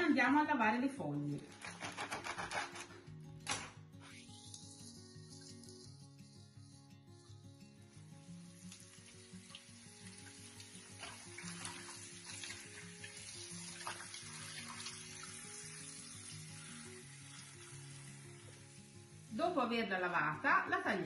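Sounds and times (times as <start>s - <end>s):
soft background music: 0.0s - 21.0s
tap water pouring into basin: 8.4s - 19.3s.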